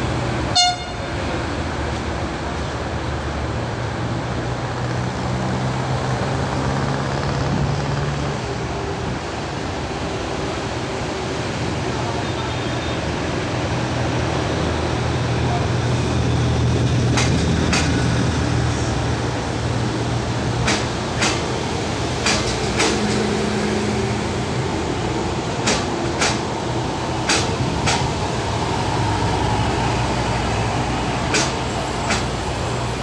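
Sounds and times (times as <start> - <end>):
train engine idling with low hum: 8.5 - 33.0.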